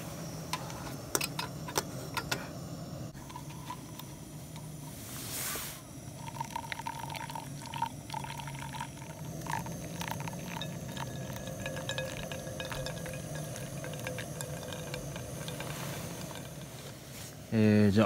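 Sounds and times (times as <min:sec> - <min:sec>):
hot water pouring onto coffee: 0:03.2 - 0:17.5.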